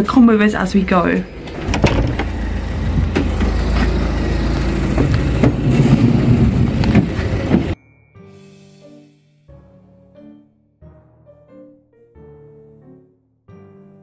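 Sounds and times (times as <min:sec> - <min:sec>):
street noise: 0:00.0 - 0:07.8
taxi engine idling: 0:00.6 - 0:07.8
low rumble: 0:00.8 - 0:07.8
quiet piano music: 0:07.2 - 0:14.0.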